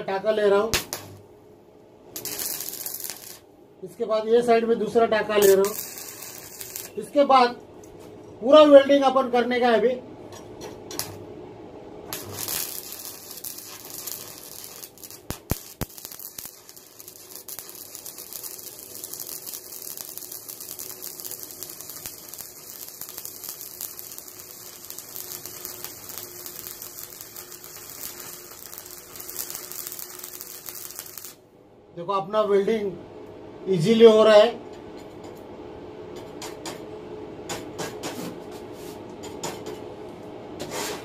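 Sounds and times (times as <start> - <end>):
welding arc crackling: 0.6 - 1.2, 2.1 - 3.5, 5.2 - 7.3, 12.1 - 31.4.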